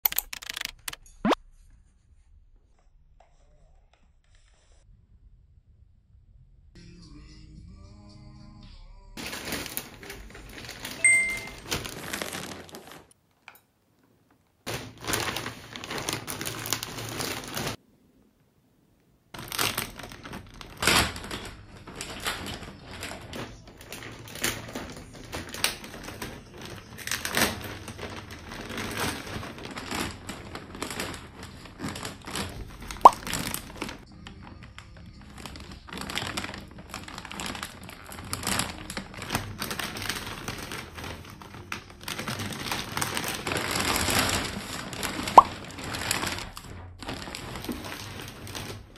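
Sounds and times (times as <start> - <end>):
plastic mailer bags crinkling: 0.1 - 1.0, 9.2 - 13.2, 14.6 - 17.8, 19.4 - 48.9
short tone: 11.0 - 11.6.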